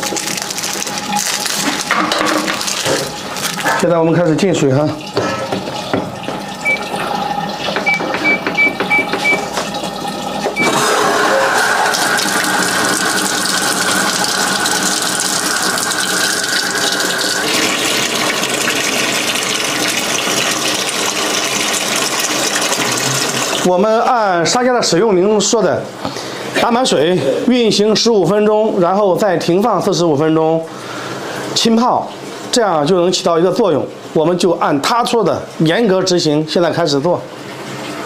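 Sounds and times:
water gushing into drum: 0.0 - 27.8, 29.2 - 38.0
short electronic beeps: 6.6 - 6.9, 7.8 - 9.5.

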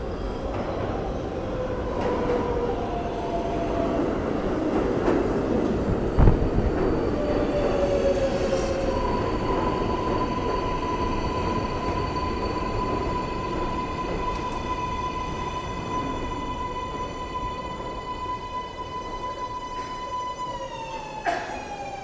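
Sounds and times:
subway train rumbling past: 0.0 - 22.0
train high whine: 6.2 - 22.0.

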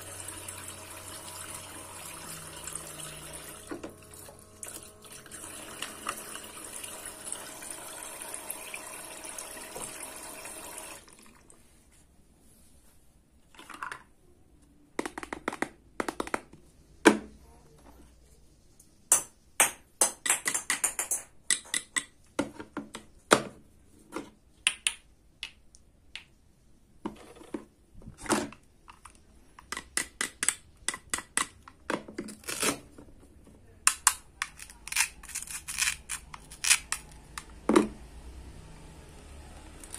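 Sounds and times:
toy faucet running water: 0.0 - 11.1
plastic play food clicks and taps: 15.0 - 16.6, 20.0 - 23.1, 28.9 - 32.3, 33.8 - 34.7.

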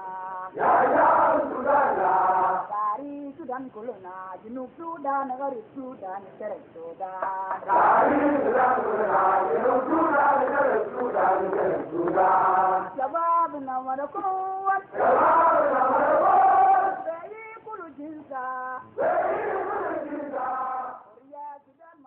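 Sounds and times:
group singing a chant: 0.0 - 2.8, 7.2 - 13.2, 14.7 - 17.3, 19.0 - 21.2.

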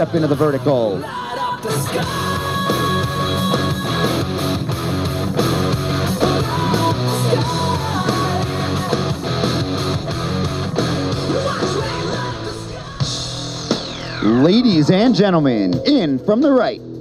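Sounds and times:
rock music with electric guitar: 0.0 - 17.0.

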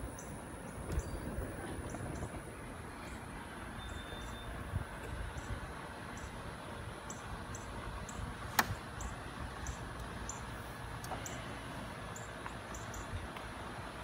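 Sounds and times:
sharp click: 8.5 - 8.8.

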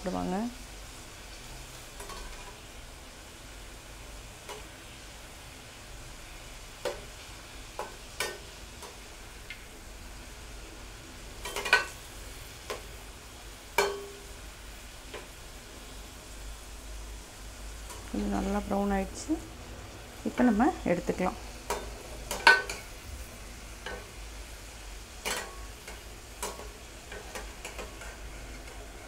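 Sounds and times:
hot oil sizzling: 0.0 - 29.0
metal spoon clinking against pan: 13.8 - 14.2, 21.7 - 22.9, 25.2 - 28.1.

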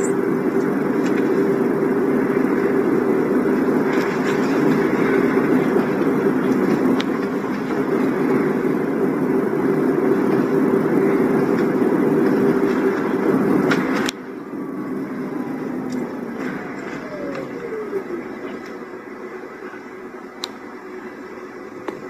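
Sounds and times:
road and tyre noise in car cabin: 0.0 - 22.0.

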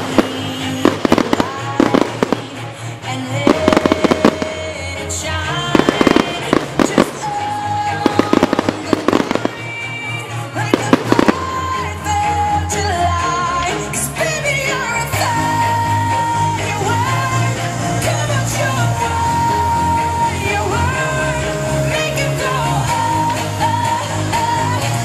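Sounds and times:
fireworks bursting and crackling: 0.0 - 12.2
music with steady bass line: 0.0 - 25.0.

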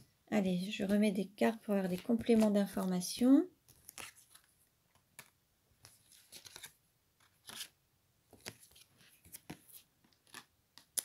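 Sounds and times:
cards sliding and tapping: 3.6 - 7.7, 8.3 - 11.0.

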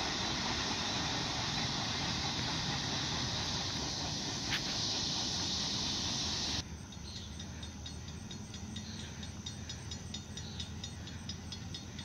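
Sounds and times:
distant diesel locomotive rumble: 0.0 - 12.0
steady high ticks: 6.8 - 12.0.

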